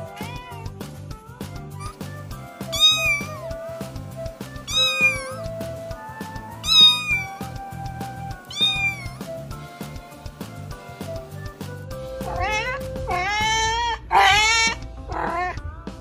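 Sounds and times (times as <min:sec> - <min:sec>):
kitten meowing: 0:00.0 - 0:00.7, 0:01.8 - 0:02.0, 0:02.7 - 0:03.4, 0:04.7 - 0:05.5, 0:06.6 - 0:07.5, 0:08.5 - 0:09.2, 0:12.2 - 0:15.6
background music with steady beat: 0:00.0 - 0:16.0.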